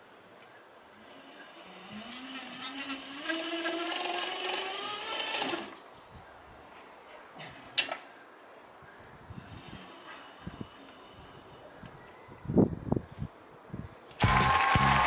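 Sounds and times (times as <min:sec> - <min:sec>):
cycling rollers whining: 0:01.0 - 0:05.8.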